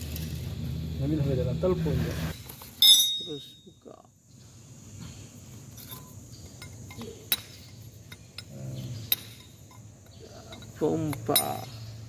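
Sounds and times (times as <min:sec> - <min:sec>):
wrench clinking against metal: 0:02.8 - 0:03.7, 0:05.7 - 0:12.0.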